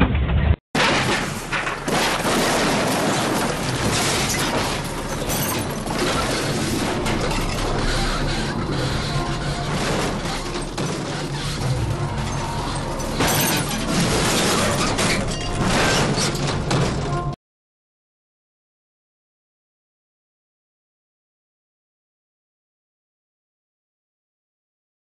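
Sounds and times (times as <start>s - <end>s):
car crashing and crunching metal: 0.8s - 17.4s.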